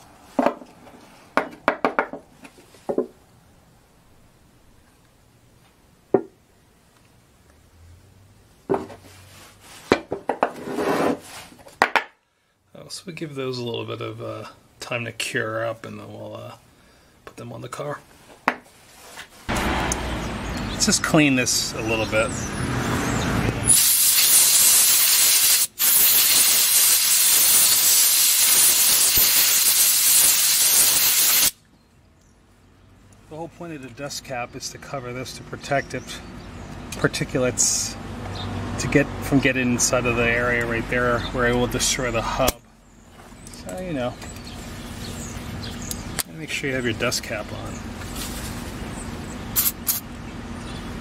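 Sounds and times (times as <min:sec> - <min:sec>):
can scraping on wood: 0:10.5 - 0:11.4
aerosol spray hissing: 0:23.7 - 0:31.6.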